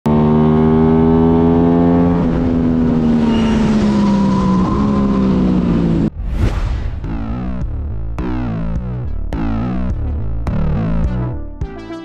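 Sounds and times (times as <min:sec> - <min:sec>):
motorcycle engine at high revs: 0:00.0 - 0:06.1
wind rushing: 0:03.0 - 0:08.0.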